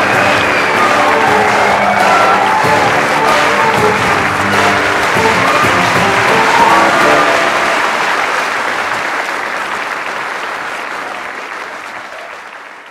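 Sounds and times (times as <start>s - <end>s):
music playing: 0.0s - 9.0s
audience applauding: 0.0s - 12.9s.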